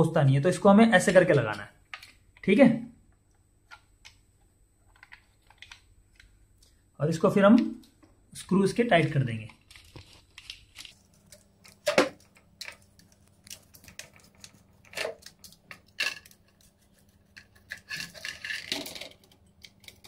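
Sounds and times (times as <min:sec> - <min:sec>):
screwdriver clicking and scraping: 0:14.9 - 0:20.0.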